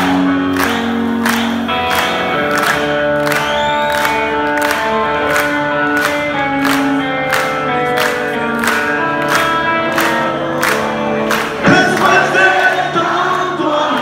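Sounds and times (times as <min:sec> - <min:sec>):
electric guitar: 0:00.0 - 0:14.0
voices singing: 0:11.5 - 0:14.0.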